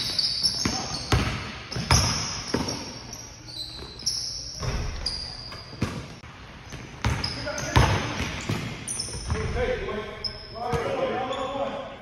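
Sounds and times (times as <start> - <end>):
basketball bouncing on wooden floor: 0.6 - 2.8, 6.7 - 9.5.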